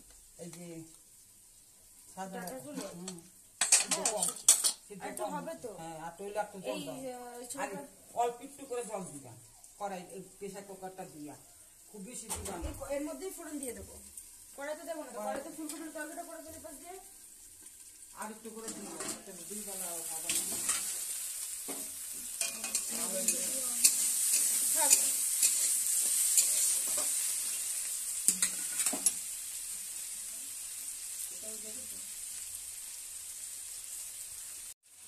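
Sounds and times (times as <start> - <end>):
vegetables sizzling in a pan: 0.0 - 35.0
spatula stirring and scraping: 18.4 - 29.3.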